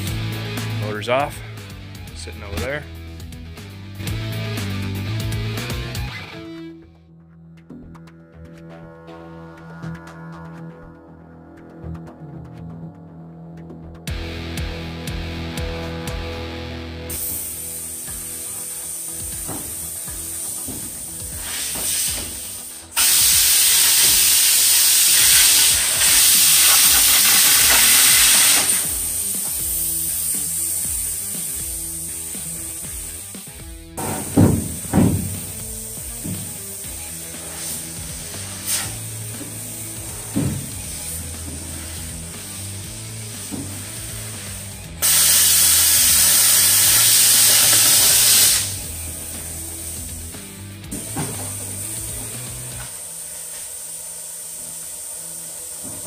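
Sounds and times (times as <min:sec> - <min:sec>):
background music: 0:00.0 - 0:56.0
plasma cutter hissing: 0:17.1 - 0:56.0.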